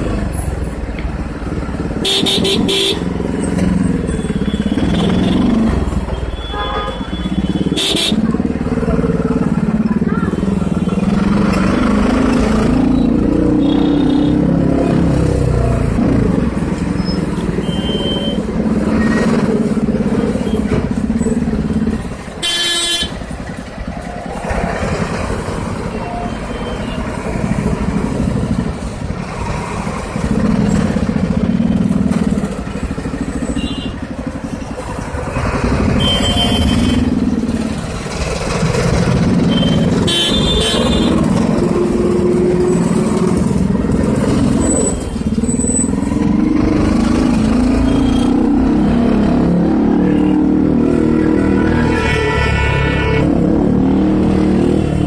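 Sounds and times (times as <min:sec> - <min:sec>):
motorcycle engine running: 0:00.0 - 0:14.4, 0:15.0 - 0:51.1
road and wind noise: 0:00.0 - 0:55.0
vehicle horns tooting: 0:02.0 - 0:03.2, 0:04.2 - 0:08.3, 0:13.6 - 0:14.5, 0:17.4 - 0:18.5, 0:22.4 - 0:23.3, 0:33.5 - 0:34.1, 0:35.7 - 0:37.2, 0:39.3 - 0:41.5, 0:51.6 - 0:53.5.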